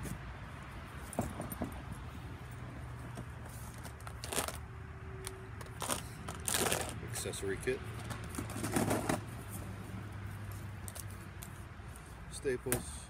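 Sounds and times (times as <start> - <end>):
plastic packaging crinkling: 4.0 - 4.6, 5.7 - 7.0.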